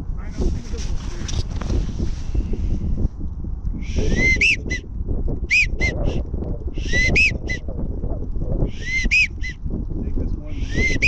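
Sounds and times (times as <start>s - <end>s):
wind rumble: 0.0s - 11.0s
duck whistled calls: 3.9s - 4.8s, 5.5s - 6.1s, 6.8s - 7.6s, 8.7s - 9.6s, 10.6s - 11.0s.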